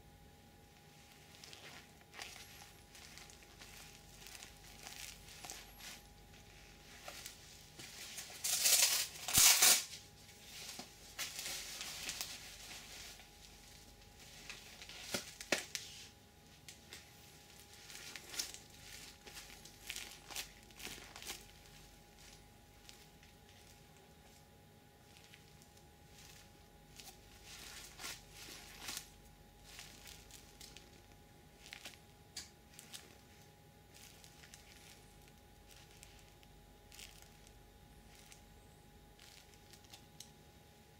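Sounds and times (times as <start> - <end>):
gloves rustling and crinkling: 0.5 - 40.9
faint steady tone: 9.9 - 40.9.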